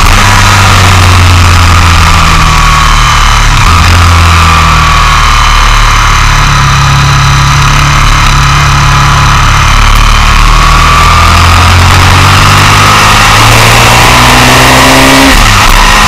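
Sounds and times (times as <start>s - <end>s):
motorcycle engine revving high: 0.0s - 16.0s
tyre roar: 9.5s - 16.0s.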